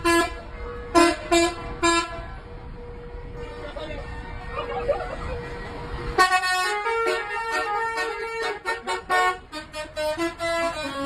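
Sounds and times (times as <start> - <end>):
bus air horn playing tune: 0.0 - 2.3, 6.1 - 11.0.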